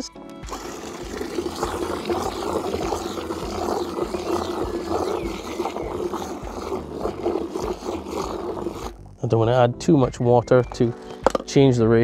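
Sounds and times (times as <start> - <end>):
hose spray gushing into bucket: 0.4 - 9.0.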